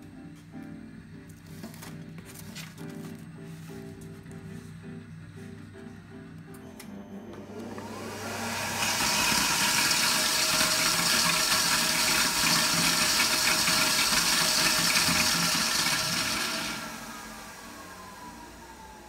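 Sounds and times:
blower rushing: 6.8s - 19.0s.

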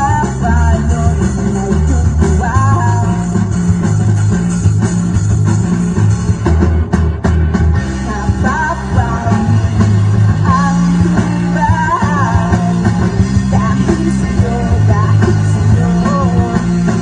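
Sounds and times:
person singing: 0.0s - 3.5s, 7.9s - 17.0s
rock band playing live: 0.0s - 17.0s.

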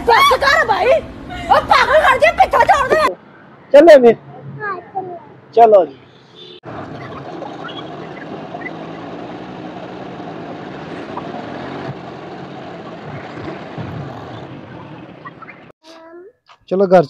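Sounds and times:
vehicle engine running: 6.6s - 15.7s
tyre and wind noise: 10.9s - 15.7s.

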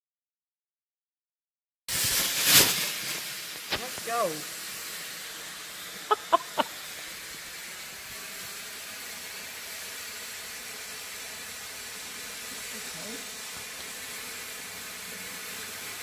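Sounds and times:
firework sparks hissing: 1.9s - 16.0s.

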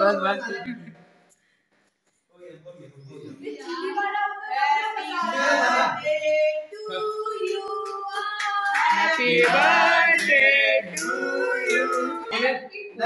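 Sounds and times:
voices singing held notes: 4.5s - 12.6s.

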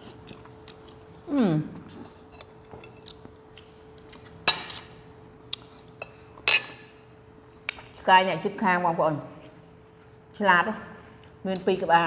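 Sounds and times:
faint steady hum: 0.0s - 12.0s
spoons clinking against bowls: 6.0s - 6.9s.

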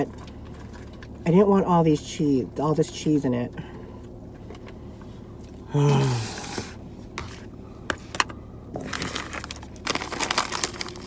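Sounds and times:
plastic crinkling and crackling: 8.8s - 11.0s.

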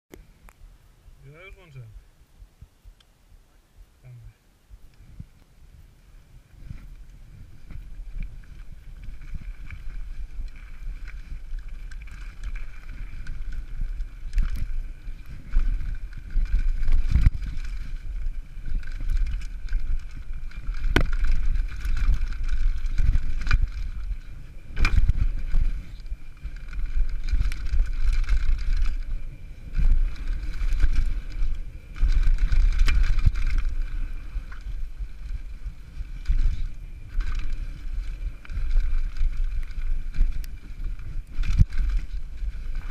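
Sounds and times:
wind buffeting microphone: 0.2s - 42.9s
bike rumbling over ground: 5.2s - 42.9s
bike knocks and clatters: 7.6s - 33.9s.

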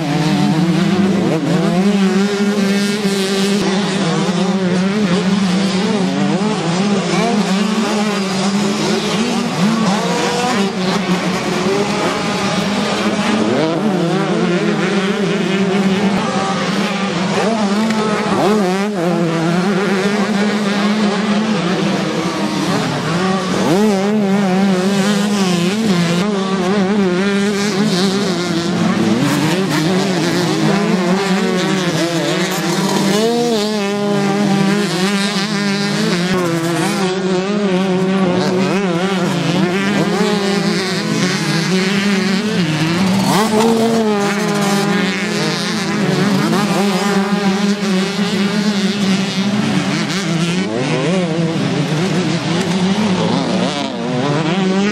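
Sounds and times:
motocross bikes revving: 0.0s - 54.9s.

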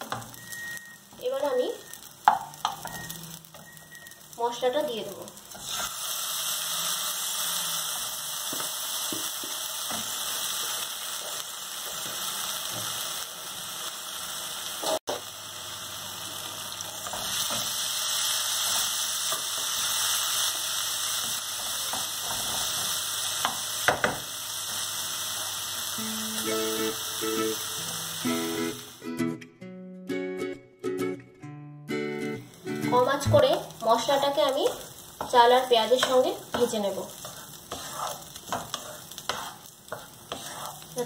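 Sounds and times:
rice and onion sizzling in oil: 0.0s - 29.1s, 32.1s - 41.0s
spatula stirring and scraping: 34.7s - 41.0s.

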